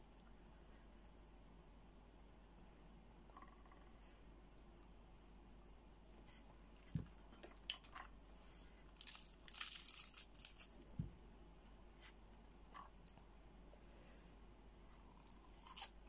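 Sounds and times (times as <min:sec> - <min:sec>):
crackling tear of meat: 0:09.0 - 0:10.8
soft low thumps: 0:10.9 - 0:11.4.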